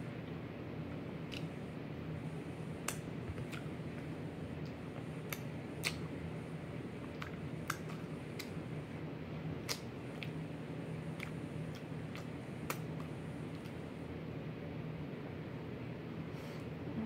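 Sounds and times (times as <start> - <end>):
wet mouth smacks: 1.3 - 1.5, 5.3 - 6.0, 9.6 - 10.4.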